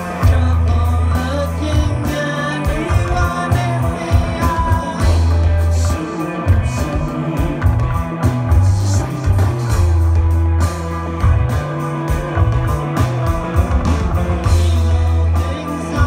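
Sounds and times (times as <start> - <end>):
person singing: 0.0 - 10.1, 14.4 - 16.0
heavy bass line: 0.0 - 16.0
live rock band playing: 0.0 - 16.0.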